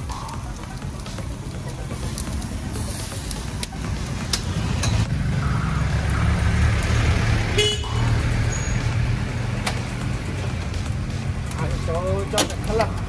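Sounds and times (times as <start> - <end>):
vehicle engines rumbling: 0.0 - 13.0
car horn toot: 7.5 - 8.8.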